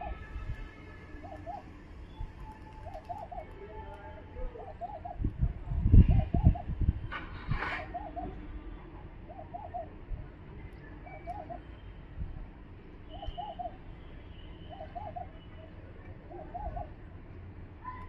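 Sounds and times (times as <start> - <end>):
dove cooing: 1.2 - 1.7, 2.7 - 3.6, 4.4 - 5.3, 6.1 - 6.7, 7.8 - 8.4, 9.3 - 10.0, 13.2 - 13.8, 14.7 - 15.4, 16.2 - 17.0
faint bird chirps: 10.6 - 12.0, 13.0 - 17.0.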